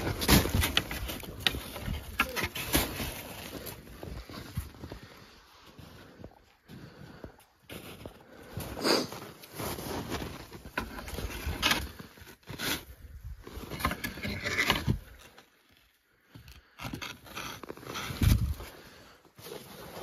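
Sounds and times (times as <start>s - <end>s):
snow crunching and scraping: 0.0s - 15.0s, 17.1s - 20.0s.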